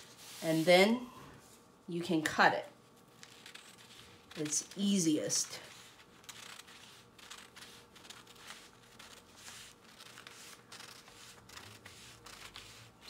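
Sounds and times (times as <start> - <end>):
scissors snipping paper: 3.2 - 13.0.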